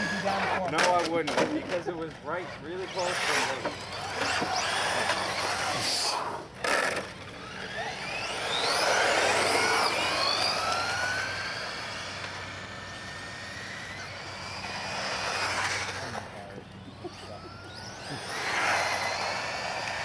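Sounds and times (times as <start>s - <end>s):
rc car motors whining: 0.0s - 20.0s.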